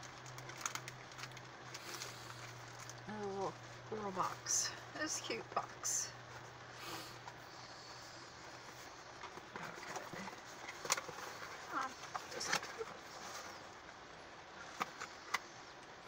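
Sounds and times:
cardboard box rustling: 0:08.7 - 0:13.7.

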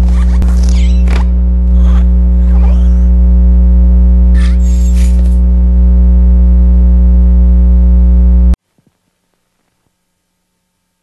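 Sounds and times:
loud electronic buzz: 0:00.0 - 0:08.6.

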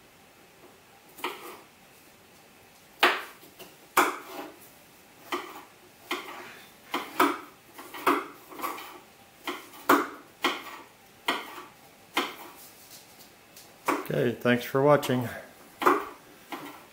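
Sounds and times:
knife chopping on cutting board: 0:01.2 - 0:01.6, 0:03.0 - 0:04.6, 0:05.2 - 0:12.6, 0:13.8 - 0:14.1, 0:15.8 - 0:16.9.

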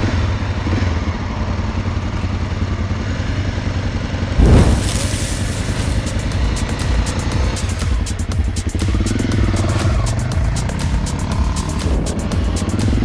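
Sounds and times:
motorcycle engine idling: 0:00.0 - 0:13.0
short loud burst: 0:04.4 - 0:07.2.

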